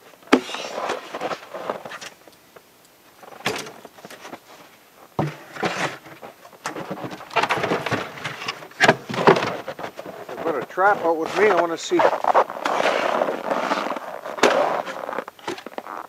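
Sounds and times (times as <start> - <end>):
rustling and shuffling: 0.1 - 2.2, 3.2 - 16.0
wooden boxes knocking and clattering: 3.4 - 4.4, 5.2 - 13.2.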